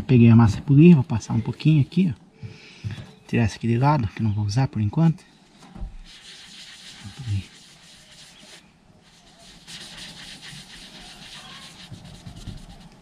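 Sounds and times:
hand rubbing polishing compound: 5.9s - 13.0s.

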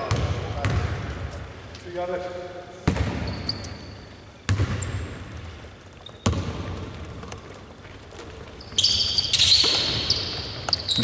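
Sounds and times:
basketball bouncing on court: 0.0s - 1.3s, 2.8s - 11.0s
high squeaking: 8.5s - 11.0s.

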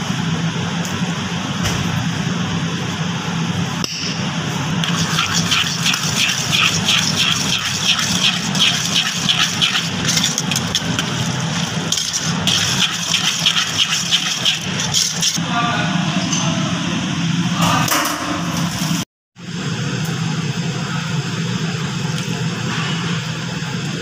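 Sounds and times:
steady low hum: 0.0s - 17.6s
metal utensil scraping a bowl: 4.8s - 15.4s.

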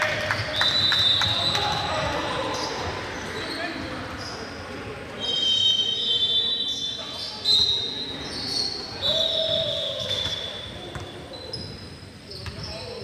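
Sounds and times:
sneaker squeaks: 0.4s - 4.6s, 5.2s - 13.0s
basketball bouncing on court: 9.5s - 11.8s.

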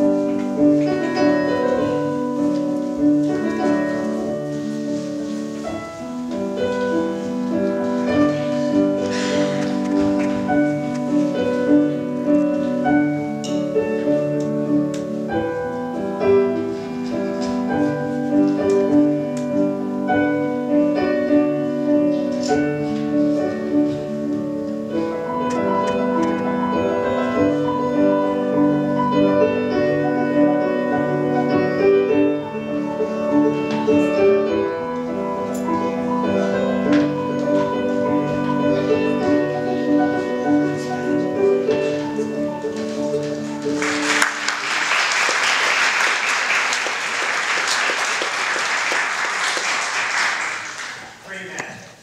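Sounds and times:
piano music: 0.0s - 51.2s
audience applauding: 43.6s - 51.6s.

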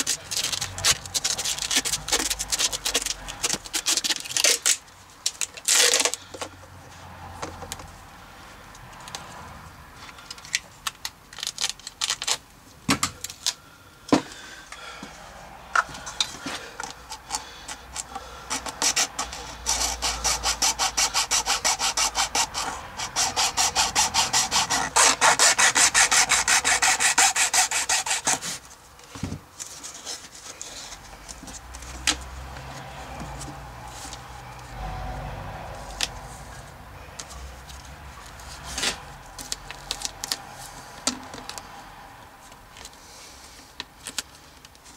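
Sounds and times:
saw cutting plastic: 0.0s - 4.8s, 16.8s - 28.6s
duct tape ripping: 0.0s - 6.3s, 10.4s - 12.5s.

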